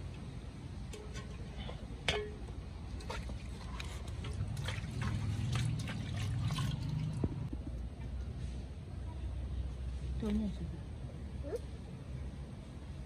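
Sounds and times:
liquid trickling and splashing: 2.8 - 7.6.

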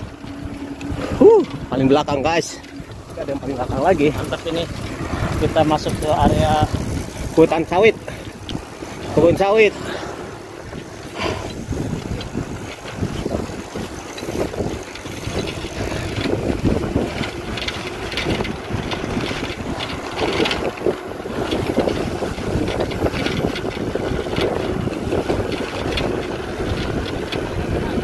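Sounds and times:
bicycle knocks and rattles: 0.0 - 9.7, 10.4 - 28.0
wind buffeting microphone: 0.0 - 28.0.

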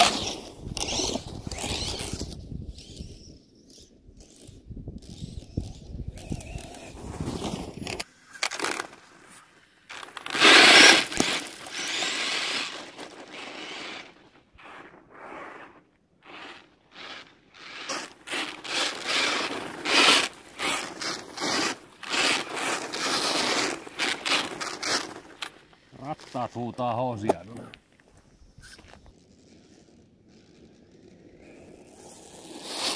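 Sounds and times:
tyres crunching through snow and gravel: 6.2 - 32.9.

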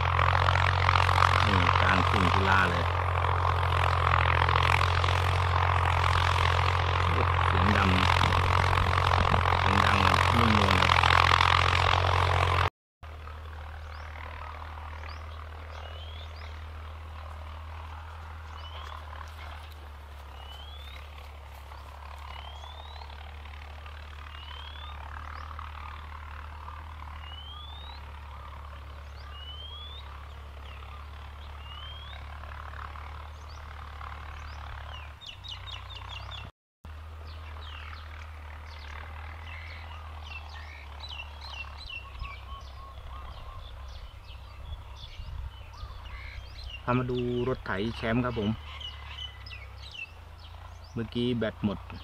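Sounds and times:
birds chirping: 0.0 - 52.0
distant tractor engine drone: 0.0 - 52.0
bird rising whistle: 29.2 - 30.1.

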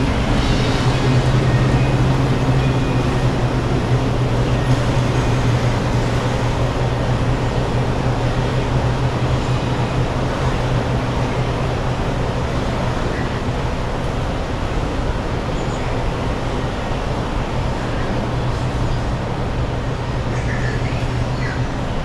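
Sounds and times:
constant low drone: 0.0 - 22.0
indoor hall rushing noise: 0.0 - 22.0.

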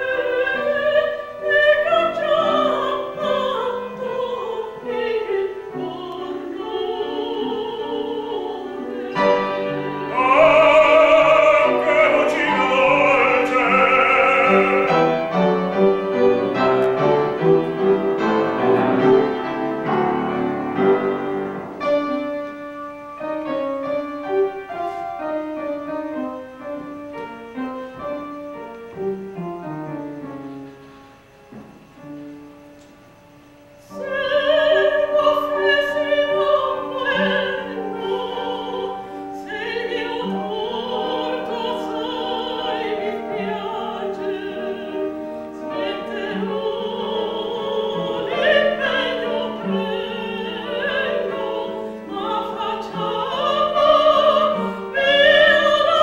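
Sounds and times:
operatic soprano singing: 0.0 - 15.4, 33.8 - 56.0
piano accompaniment: 0.0 - 56.0.

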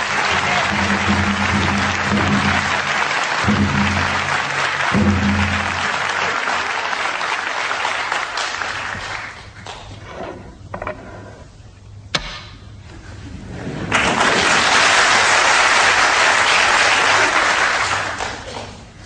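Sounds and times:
audience applauding: 0.0 - 10.0, 13.9 - 19.0.

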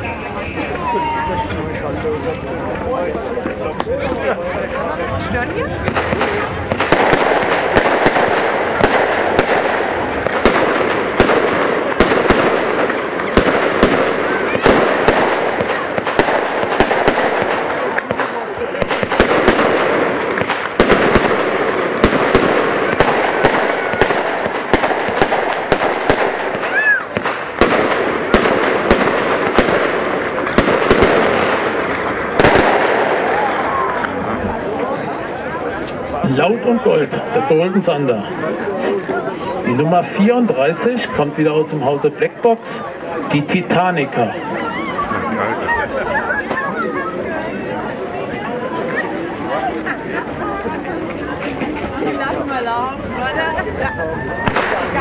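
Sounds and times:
firework crackling: 0.0 - 55.0
firework bangs: 5.1 - 38.6, 49.4 - 55.0.

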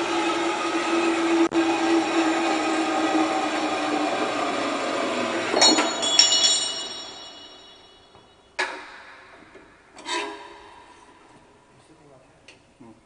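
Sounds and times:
metallic clanks with ringing: 5.5 - 8.2.

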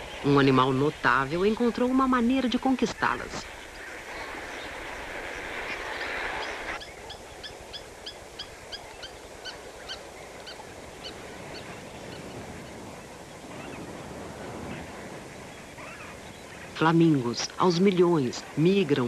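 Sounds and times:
dense rushing noise: 0.0 - 6.8
flamingos honking: 0.0 - 19.0.

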